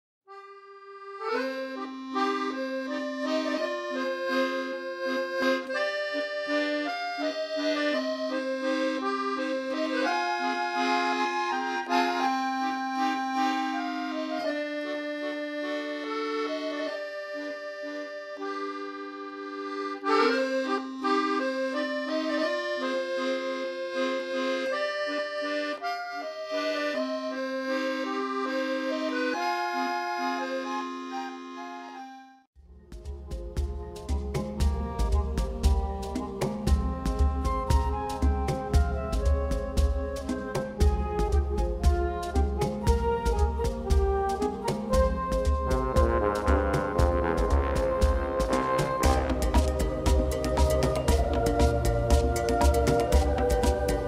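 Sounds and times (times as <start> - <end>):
accordion background music: 0.3 - 54.0.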